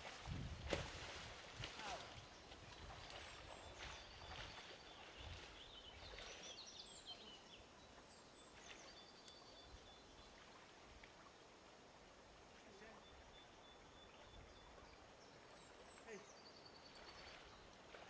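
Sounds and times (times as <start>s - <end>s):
low background hiss: 0.0s - 18.0s
small birds chirping: 1.7s - 10.4s, 12.6s - 18.0s.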